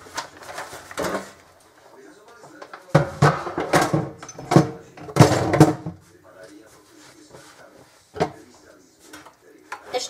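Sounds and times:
plastic sheet rustling and crinkling: 0.0 - 2.9.

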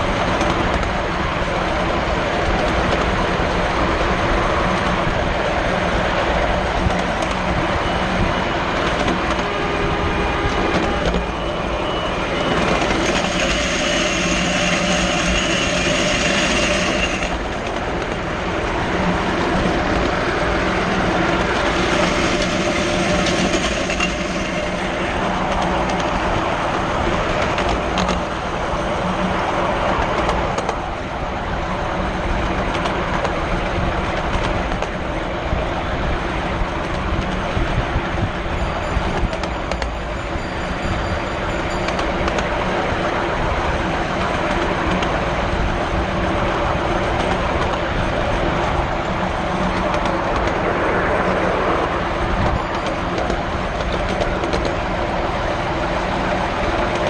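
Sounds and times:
train wheels rumbling on rails: 0.0 - 57.0
high ringing: 11.2 - 17.6, 20.6 - 25.5, 38.5 - 43.0.

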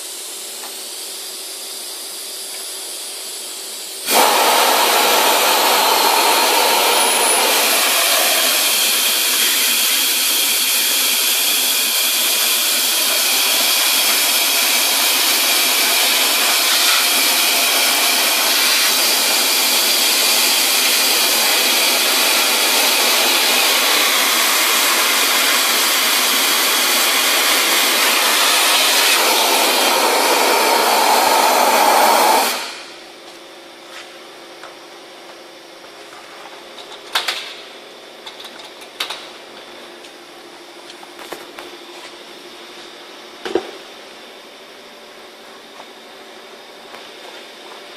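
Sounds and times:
vacuum cleaner rush of air: 4.0 - 33.2.

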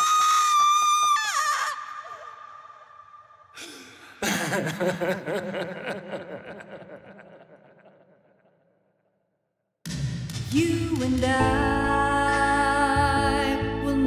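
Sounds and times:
person laughing: 4.2 - 8.1.

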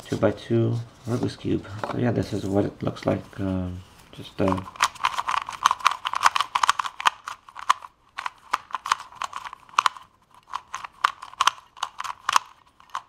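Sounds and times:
plastic puzzle cube clicking: 4.4 - 13.0.

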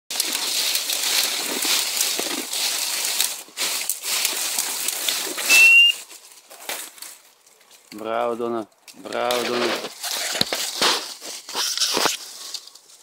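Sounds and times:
undergrowth rustling and crackling: 0.1 - 13.0
high steady whistle note: 5.5 - 6.0.

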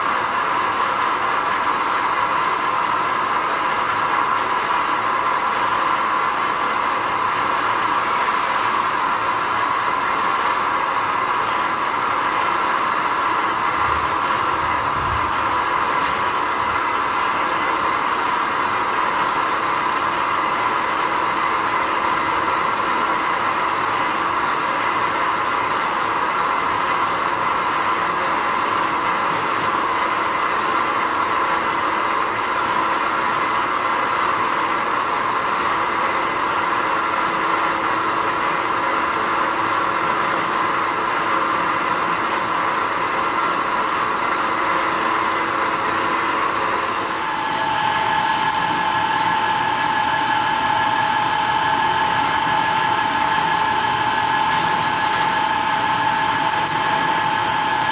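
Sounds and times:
hoist ticking: 47.1 - 57.9
chain hoist whining: 47.2 - 57.9.

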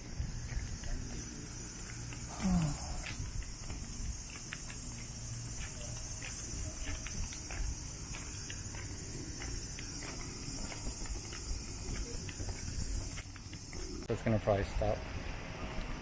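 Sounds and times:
cicadas droning: 0.0 - 16.0.

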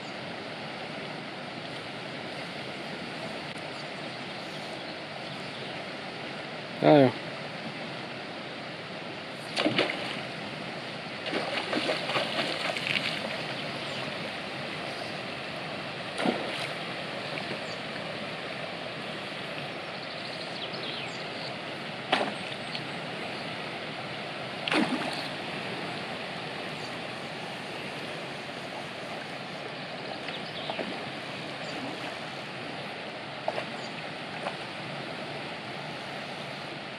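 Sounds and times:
stream rushing: 0.0 - 36.9
fish splashing: 9.5 - 10.3, 11.3 - 13.4, 16.1 - 17.6, 24.6 - 25.4.

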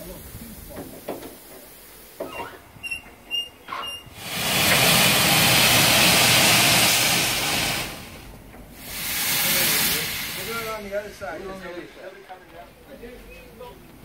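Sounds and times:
locomotive steam hissing: 0.0 - 12.2
short high squeaks: 2.2 - 4.1.

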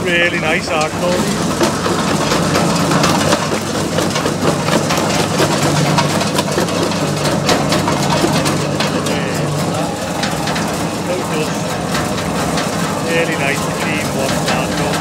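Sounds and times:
jaw crusher engine running: 0.0 - 15.0
rubble knocking and cracking: 0.8 - 11.0.

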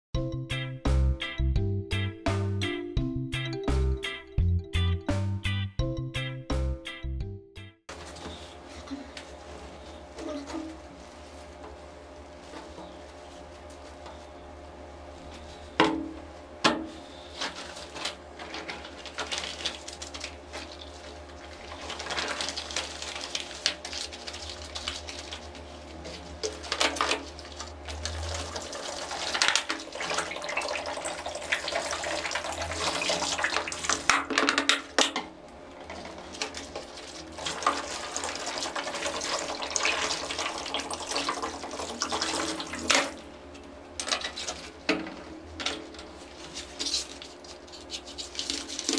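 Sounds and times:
water pouring into plastic basin: 19.1 - 25.4, 26.7 - 34.2, 36.6 - 43.2.

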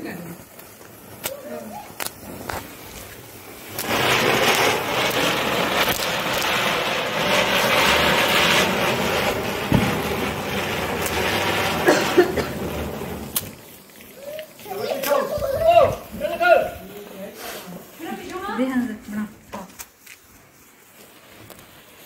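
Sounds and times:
spinner firework hissing: 0.0 - 22.0
firework pops: 0.5 - 16.0, 21.0 - 22.0.

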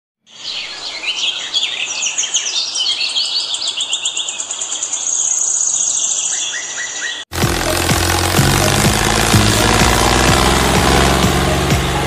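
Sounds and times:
birds chirping: 0.3 - 12.0
high-pitched trill: 7.4 - 12.0.

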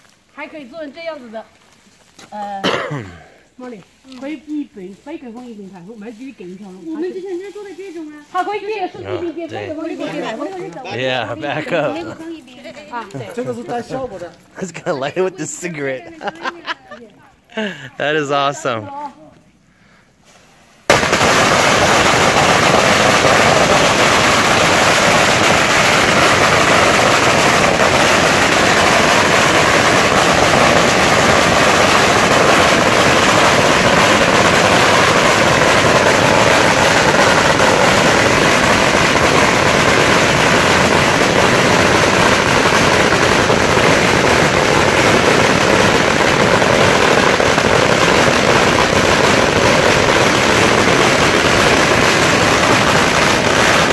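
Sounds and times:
firecrackers crackling: 0.0 - 18.8, 19.6 - 53.9.

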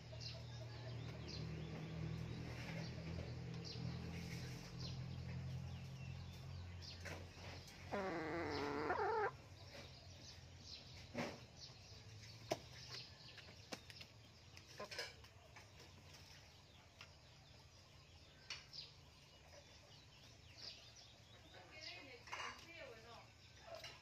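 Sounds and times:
chicken calling: 7.8 - 9.5.

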